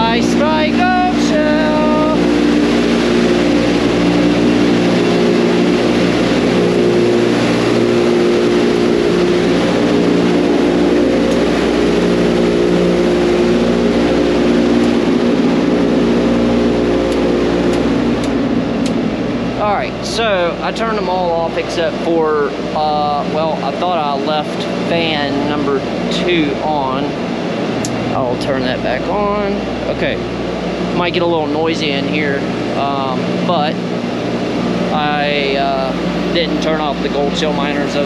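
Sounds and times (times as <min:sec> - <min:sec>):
cooling fans whirring: 0:00.0 - 0:38.0
low hum tones: 0:00.0 - 0:38.0.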